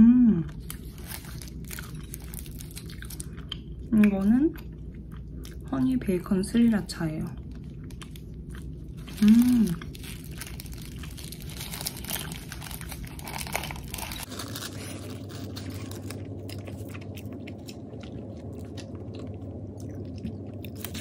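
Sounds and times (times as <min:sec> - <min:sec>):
person chewing crunchy food: 0:00.5 - 0:21.0.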